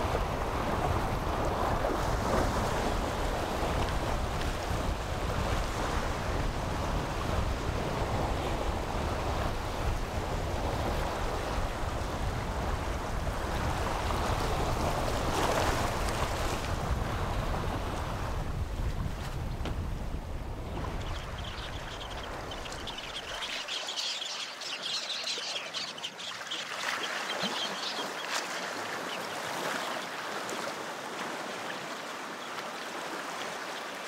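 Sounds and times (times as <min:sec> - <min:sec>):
wind rumbling on microphone: 0:00.0 - 0:23.9.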